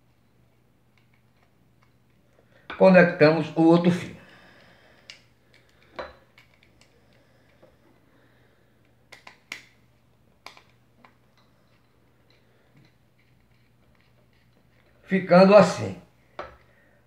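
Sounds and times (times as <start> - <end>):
screwdriver clicking and scraping: 0.9 - 2.2, 5.1 - 7.2, 10.4 - 15.0.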